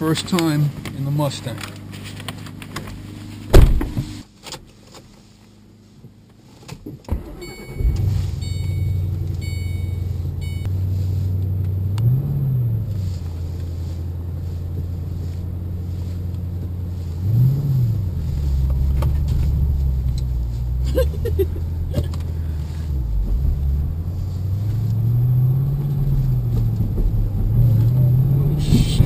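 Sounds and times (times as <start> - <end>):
thump: 3.5 - 4.1
car engine starting and idling: 6.4 - 29.0
warning chime: 7.3 - 10.7.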